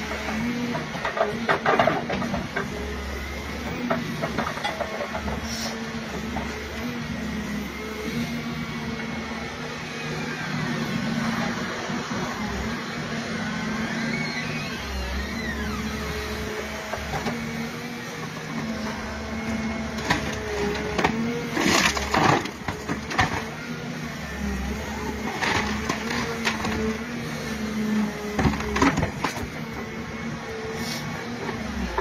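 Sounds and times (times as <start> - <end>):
excavator engine and hydraulics whining: 0.0 - 32.0
wood cracking and splitting: 19.9 - 23.6, 25.0 - 27.0, 28.4 - 29.6.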